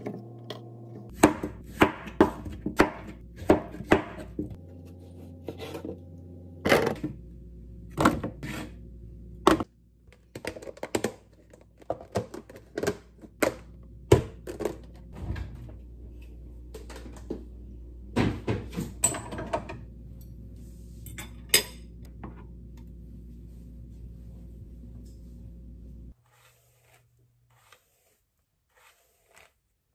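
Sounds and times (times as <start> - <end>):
low room hum: 0.0 - 26.2
knife chopping on plastic board: 1.1 - 4.5.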